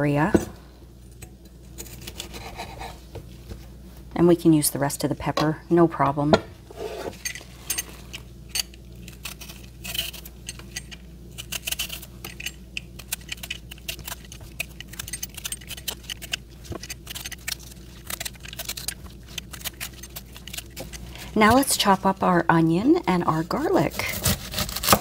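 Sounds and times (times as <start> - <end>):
faint steady hum: 0.0 - 25.0
pepper pieces being handled: 7.1 - 24.0.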